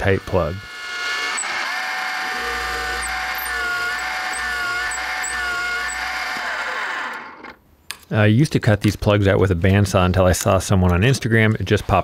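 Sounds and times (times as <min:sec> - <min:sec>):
drill press motor whine: 0:00.0 - 0:07.6.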